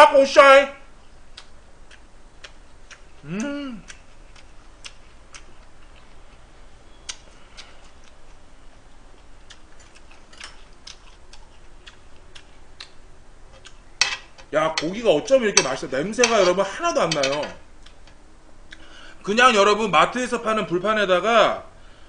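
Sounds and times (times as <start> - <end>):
low room hum: 0.0 - 22.0
short hummed vocal note: 3.2 - 3.9.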